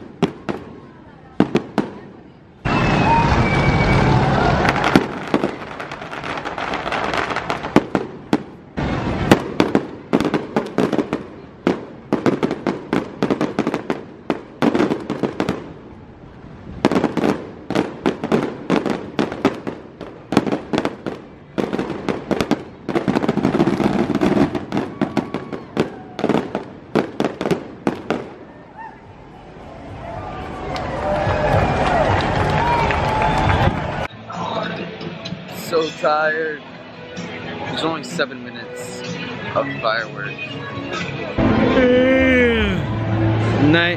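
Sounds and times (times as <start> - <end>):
fireworks bangs and crackling: 0.0 - 28.7.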